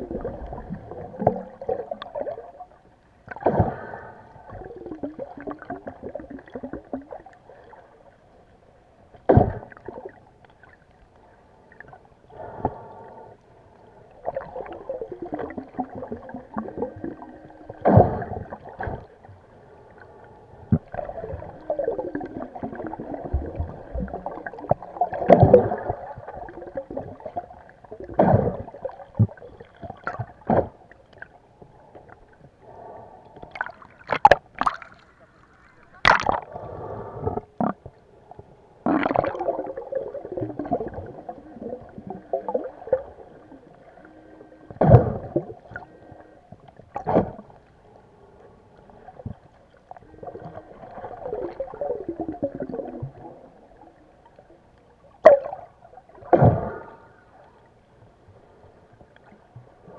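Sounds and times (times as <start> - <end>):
muffled underwater gurgling: 0.0 - 8.0, 11.2 - 31.3, 38.8 - 47.7, 48.6 - 57.7.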